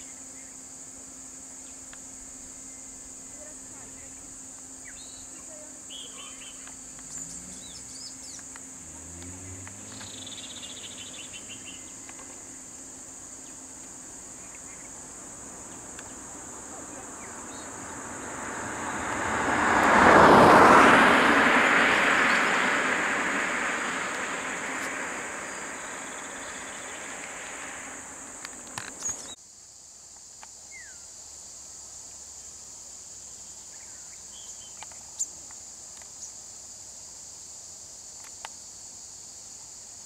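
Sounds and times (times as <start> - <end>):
high insect drone: 0.0 - 40.0
bird chirps: 4.8 - 8.6, 9.4 - 12.2, 22.2 - 29.4
car passing by: 5.9 - 29.4.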